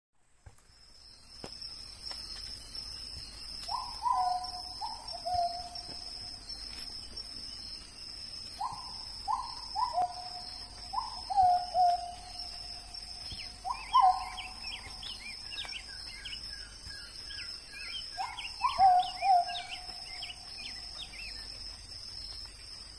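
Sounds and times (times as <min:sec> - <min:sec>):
insects droning: 0:00.2 - 0:22.9
bird whistled calls: 0:03.7 - 0:05.8, 0:13.4 - 0:16.3, 0:17.9 - 0:21.4.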